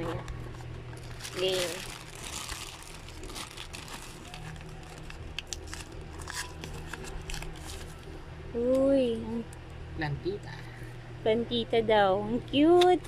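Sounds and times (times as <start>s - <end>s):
plastic bag and paper crinkling: 0.0s - 8.2s.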